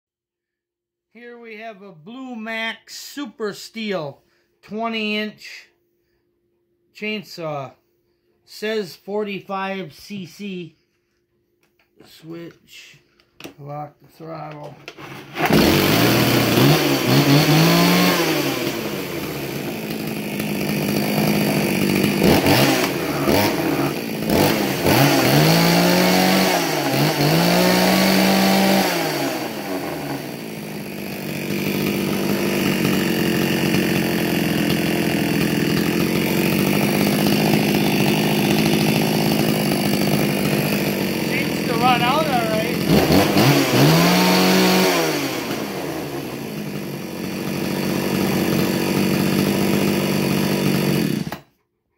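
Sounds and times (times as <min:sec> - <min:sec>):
chainsaw revving and idling: 0:14.6 - 0:51.6.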